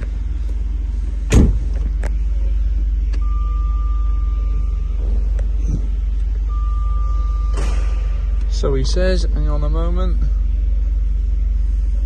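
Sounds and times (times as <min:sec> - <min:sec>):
car engine idling: 0:00.0 - 0:12.0
car warning tone: 0:02.5 - 0:10.6.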